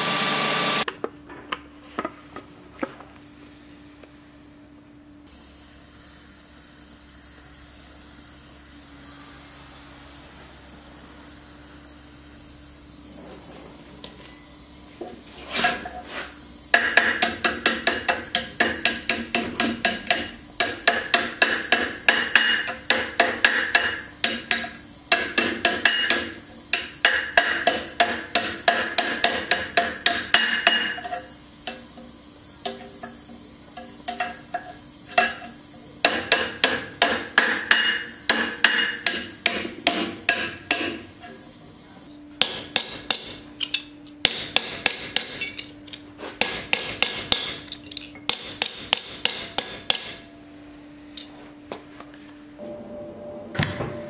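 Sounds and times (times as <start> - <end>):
hammer strikes on cold sheet steel: 16.7 - 31.1, 33.8 - 41.1, 42.4 - 43.4, 44.2 - 45.5, 46.4 - 47.6, 48.3 - 50.3
hammer striking hot steel on anvil: 16.7 - 41.4, 42.4 - 45.7, 46.4 - 47.6, 48.3 - 50.3.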